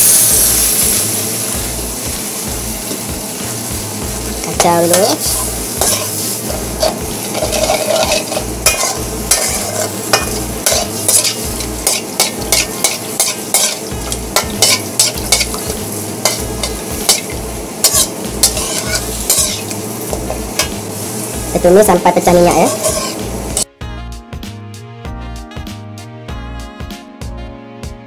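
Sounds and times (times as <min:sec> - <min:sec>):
paste sizzling in pan: 0:00.0 - 0:23.7
utensil scraping pan: 0:04.6 - 0:20.8, 0:22.5 - 0:23.7.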